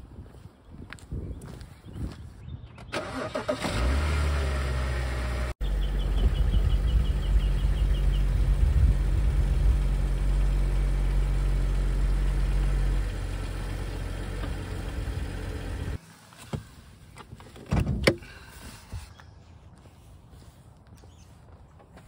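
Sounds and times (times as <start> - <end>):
car engine idling: 3.0 - 16.0.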